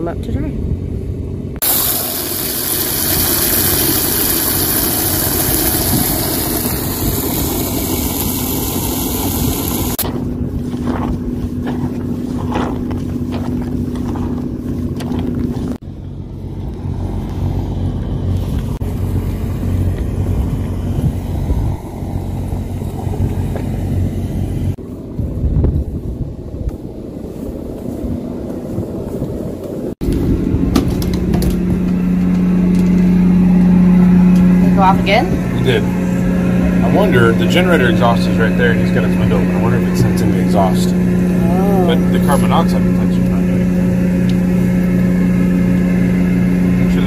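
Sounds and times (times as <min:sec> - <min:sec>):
low machine hum: 0:00.0 - 0:47.0
hose spraying water into bucket: 0:01.6 - 0:10.0, 0:36.7 - 0:43.4.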